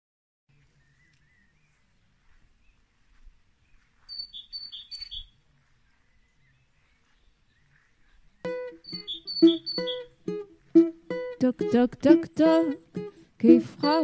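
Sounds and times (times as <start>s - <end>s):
faint bird twittering: 0.5s - 10.1s
short high bird calls: 4.1s - 5.3s, 8.8s - 10.1s.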